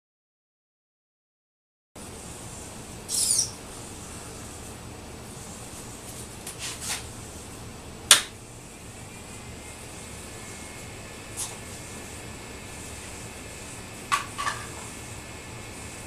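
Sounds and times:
steady hiss: 2.1 - 16.0
robot arm squeak: 3.1 - 3.6.

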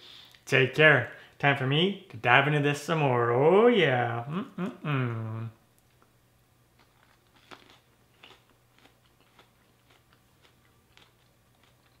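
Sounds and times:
low steady hum: 0.0 - 12.0
cranberry crunching when chewed: 6.8 - 12.0.

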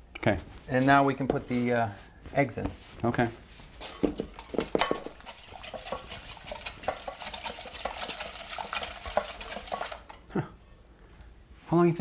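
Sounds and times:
wire whisk beating eggs in bowl: 3.8 - 10.3.

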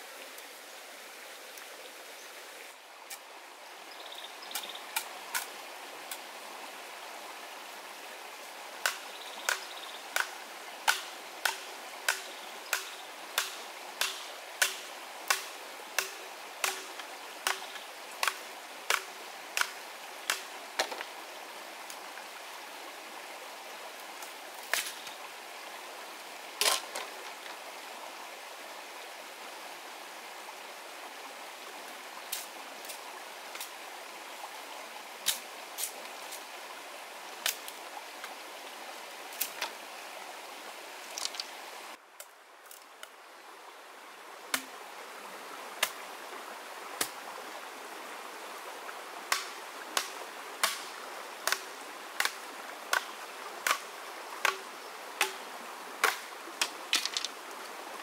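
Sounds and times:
stream running: 0.0 - 58.0
machete chopping bamboo: 10.9 - 21.0, 44.5 - 44.7, 49.3 - 53.8, 54.4 - 54.6, 55.2 - 55.4, 56.0 - 57.2.

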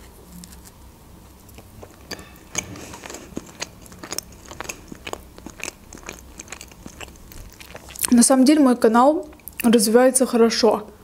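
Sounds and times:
person chewing food: 1.4 - 8.3, 9.2 - 9.7.

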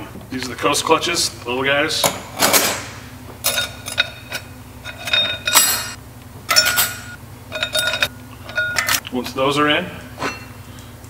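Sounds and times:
metal clutch plates clinking: 3.4 - 9.0.

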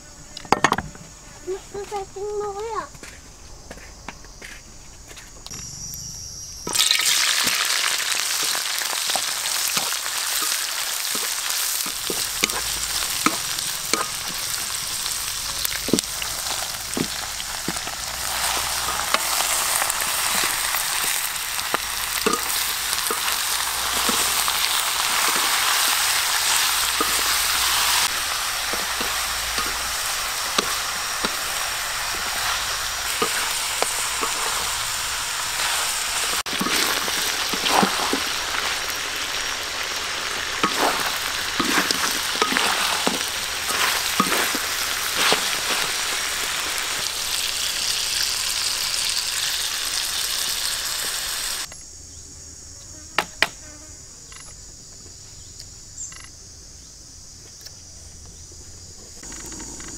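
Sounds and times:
food sizzling in hot oil: 6.0 - 51.7
spatula scraping wok: 7.9 - 47.1.

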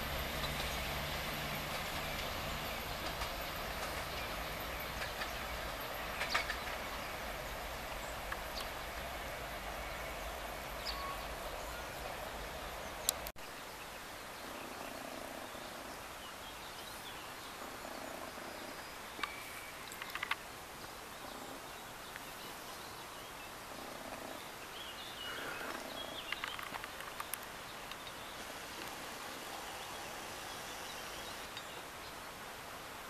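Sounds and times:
background hiss: 0.0 - 33.0
faint clicks: 18.8 - 21.0, 25.6 - 28.2.

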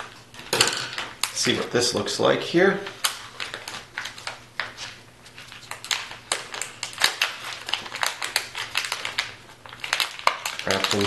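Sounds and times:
foil pouch crinkling: 2.8 - 11.0.

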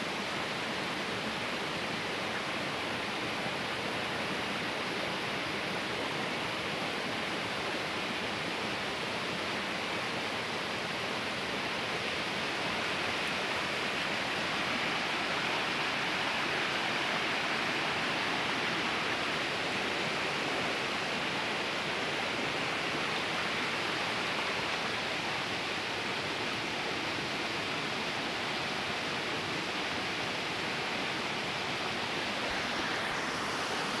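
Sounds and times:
river water rushing over rocks: 0.0 - 34.0.

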